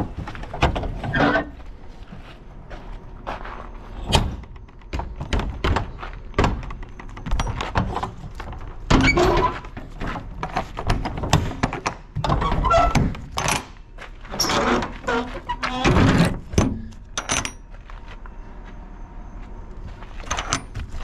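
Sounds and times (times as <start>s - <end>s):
metal truck doors clanking: 4.0s - 9.6s, 10.2s - 17.6s.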